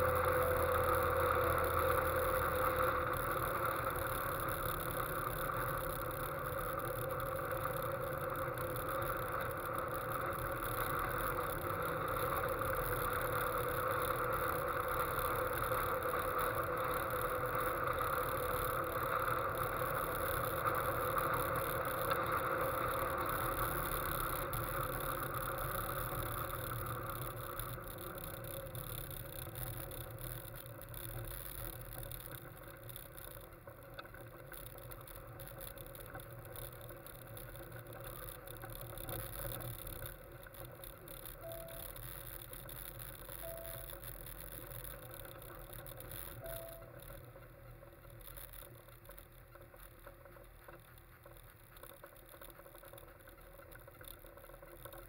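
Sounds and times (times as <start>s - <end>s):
road and wind noise: 0.0s - 55.0s
sports car engine: 0.0s - 55.0s.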